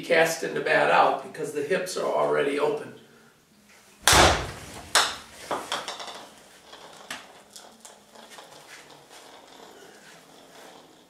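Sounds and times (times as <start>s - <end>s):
ball bouncing on hard floor: 4.0s - 6.2s.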